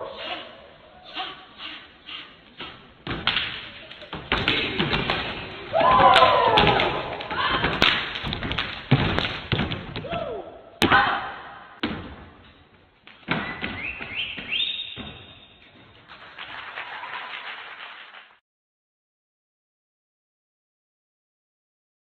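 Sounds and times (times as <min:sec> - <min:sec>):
stomping and percussion thumps: 0:02.6 - 0:12.4
rising whistle-like tones: 0:13.4 - 0:15.6.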